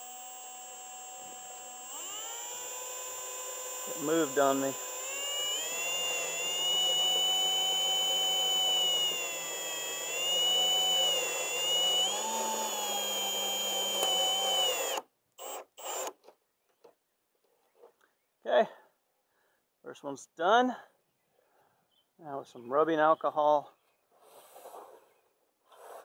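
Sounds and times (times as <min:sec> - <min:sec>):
cordless drill motor whining: 0:00.0 - 0:16.2.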